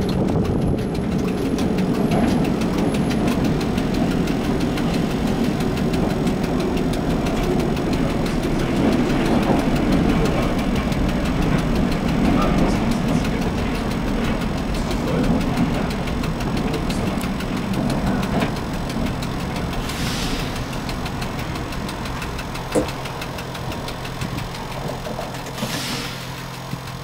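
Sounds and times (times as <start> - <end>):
tram motor hum: 0.0 - 27.0
wheels rumbling on rails: 0.0 - 27.0
short hisses: 19.9 - 20.6.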